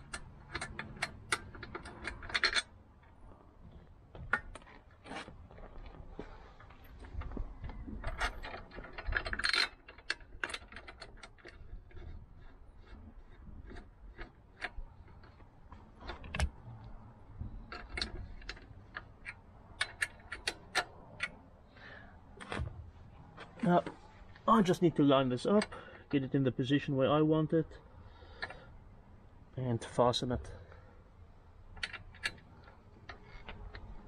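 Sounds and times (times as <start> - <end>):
metal bracket and bolts clinking: 0.0 - 2.8, 7.9 - 12.2.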